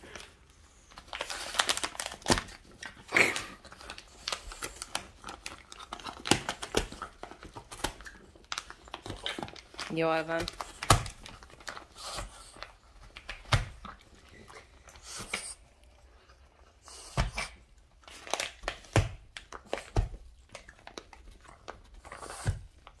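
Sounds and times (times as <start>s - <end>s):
dog tearing and chewing paper: 0.8s - 14.2s, 16.9s - 23.0s.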